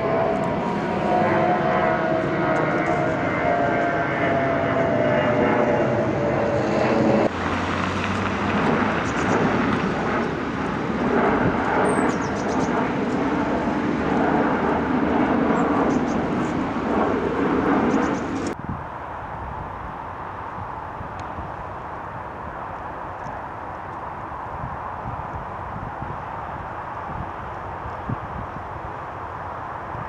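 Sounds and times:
jet airliner engines roaring overhead: 0.0 - 30.0.

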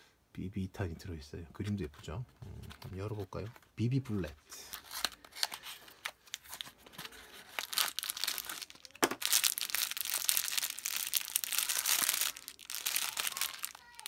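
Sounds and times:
plastic bag crinkling: 4.7 - 14.0.

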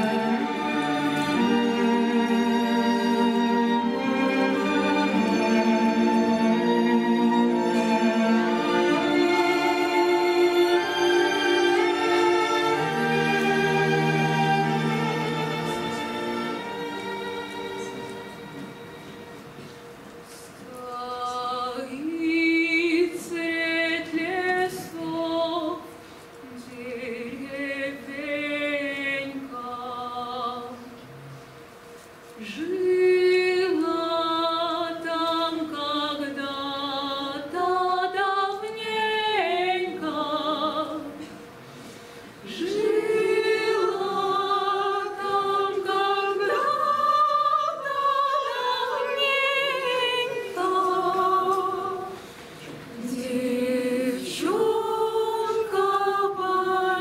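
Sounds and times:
voices singing slow song: 32.4 - 57.0.

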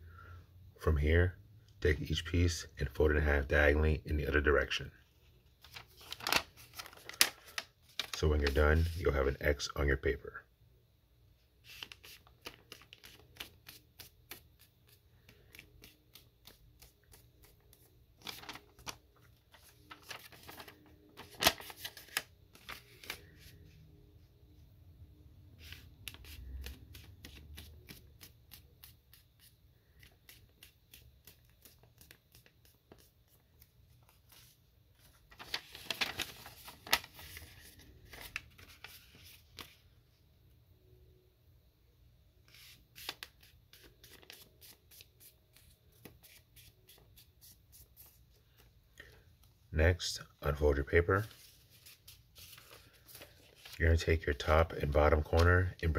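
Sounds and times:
paper rustling and crackling: 5.5 - 9.2, 11.6 - 23.6, 30.0 - 39.8, 42.5 - 48.2, 51.2 - 54.0.

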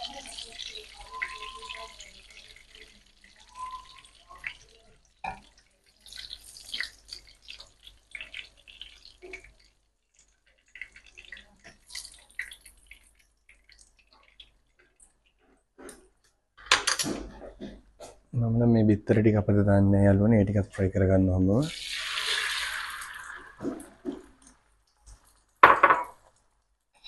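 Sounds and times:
chicken sizzling in frying oil: 0.0 - 16.2, 21.7 - 25.6.

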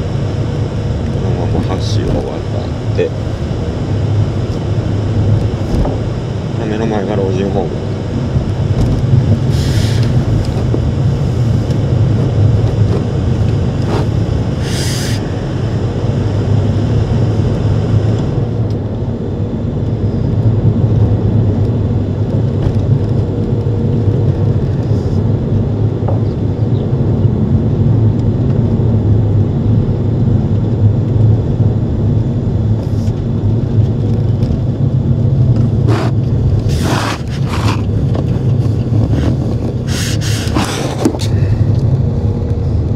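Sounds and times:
car cabin road rumble: 0.0 - 42.9.

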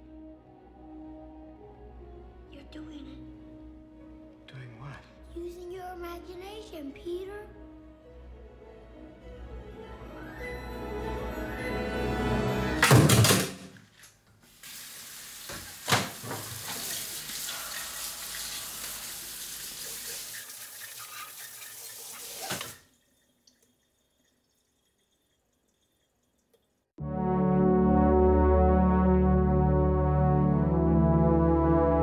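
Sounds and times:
music with low brass: 27.0 - 32.0.

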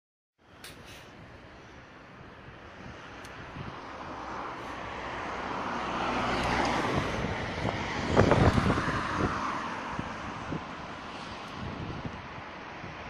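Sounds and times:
vehicle passing: 2.8 - 13.0.

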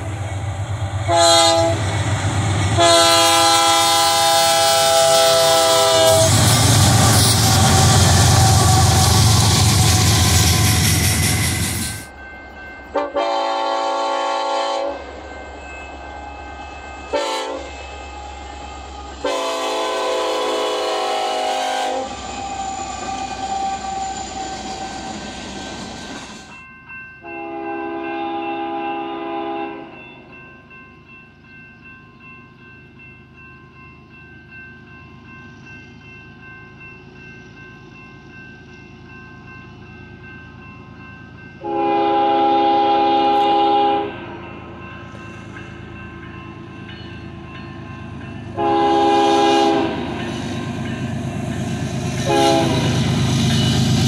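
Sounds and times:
train air horn blasts: 1.0 - 1.9, 2.7 - 11.4, 12.9 - 15.1, 17.1 - 25.3, 27.2 - 30.0, 41.6 - 44.3, 48.5 - 50.2, 52.0 - 53.8.

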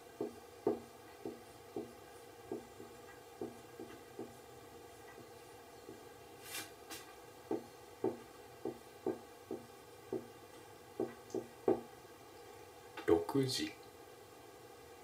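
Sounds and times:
marker tapping on whiteboard: 0.2 - 4.4, 7.5 - 10.3, 11.0 - 11.9.

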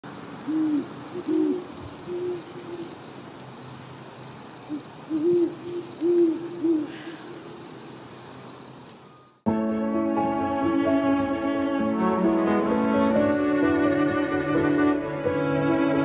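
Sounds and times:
faint ambient background: 0.1 - 9.5
owl hooting: 0.5 - 9.3.

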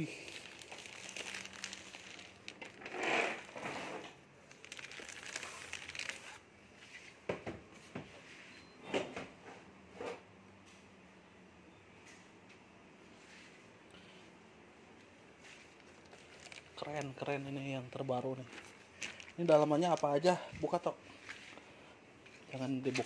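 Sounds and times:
plastic wrap crinkling: 0.0 - 6.9, 15.4 - 23.0.

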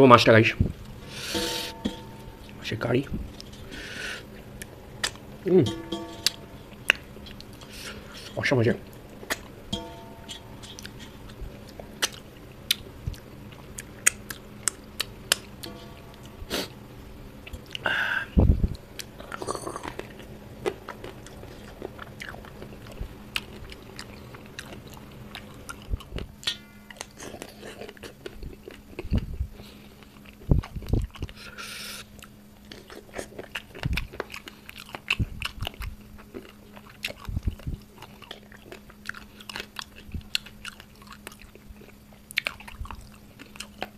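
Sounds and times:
faint steady hum: 0.0 - 43.9
person chewing and biting food: 10.7 - 15.6, 19.0 - 29.3.

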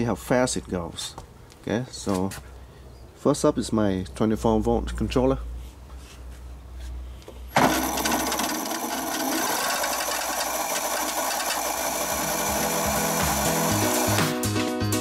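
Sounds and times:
electric motor and chain whirring: 7.5 - 14.4.

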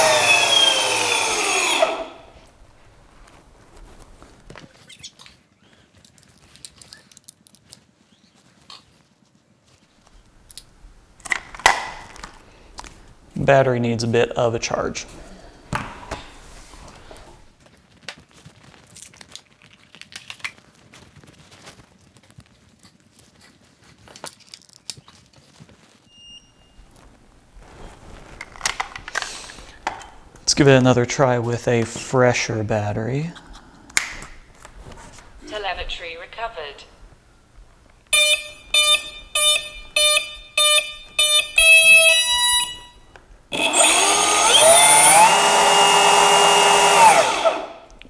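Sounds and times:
rustle and clatter: 2.7 - 8.2, 17.6 - 26.0
faint high-pitched beeping: 8.1 - 10.0, 25.4 - 26.9, 38.2 - 43.1
high electronic beep: 8.2 - 9.9, 25.4 - 26.8.

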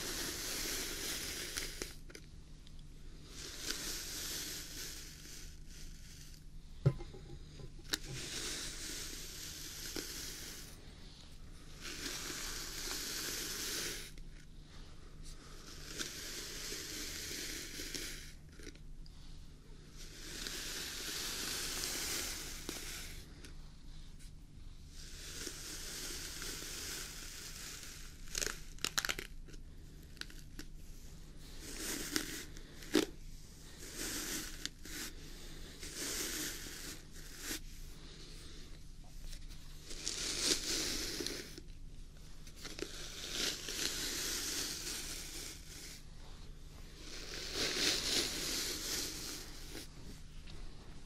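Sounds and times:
hairbrush brushing beard: 0.0 - 2.0, 3.2 - 10.9, 11.6 - 14.2, 15.4 - 18.3, 20.0 - 23.3, 31.4 - 38.3, 39.2 - 41.6, 42.5 - 50.1.

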